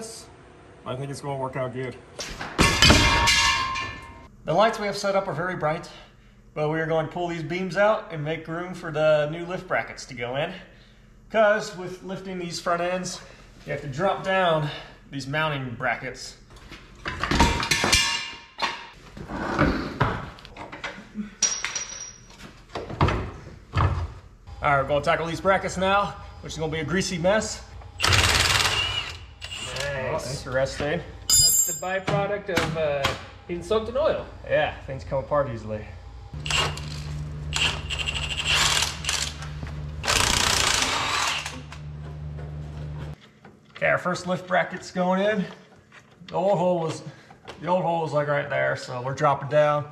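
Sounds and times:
steady low hum: 0.0 - 17.7, 22.2 - 43.5
metal tools clanking: 20.7 - 22.4, 31.3 - 32.1.

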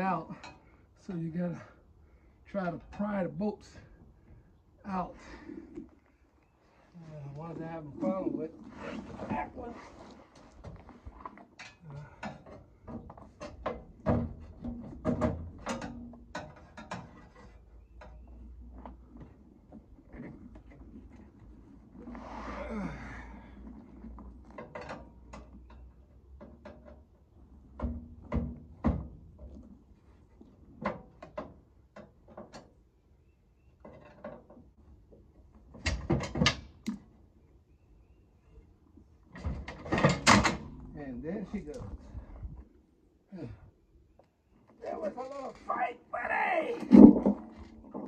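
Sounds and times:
metal clanks and knocks: 11.5 - 18.3, 39.4 - 40.9.

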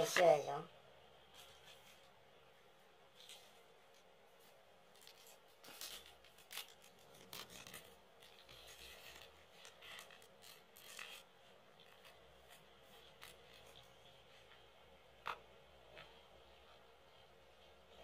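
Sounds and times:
plastic sleeve rustling against card: 3.1 - 14.7.

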